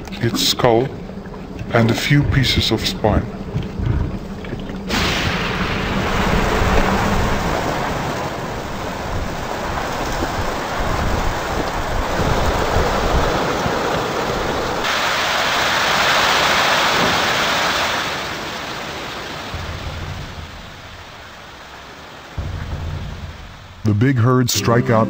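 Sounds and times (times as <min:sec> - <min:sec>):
low rumbling: 0:00.0 - 0:14.9, 0:19.2 - 0:25.0
heavy rain pouring: 0:00.0 - 0:24.3.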